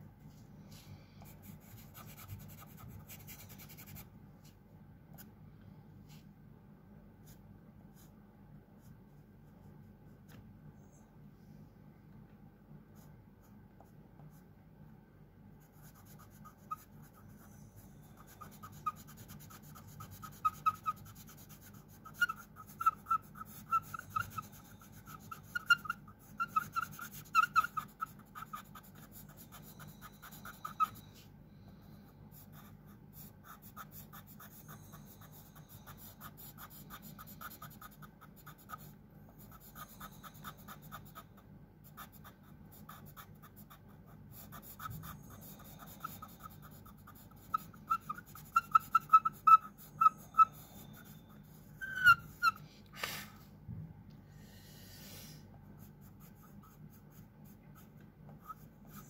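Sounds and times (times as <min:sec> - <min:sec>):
faint low hum: 0:00.0 - 0:59.0
pen scratching on paper: 0:01.4 - 0:04.1, 0:15.6 - 0:31.2, 0:32.4 - 0:41.3, 0:41.9 - 0:52.6, 0:55.8 - 0:59.0.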